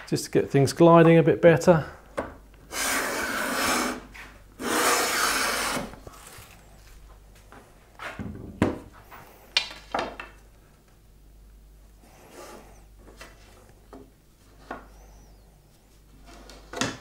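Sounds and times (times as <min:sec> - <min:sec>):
hand plane cutting wood: 0:02.7 - 0:04.0, 0:04.6 - 0:06.0.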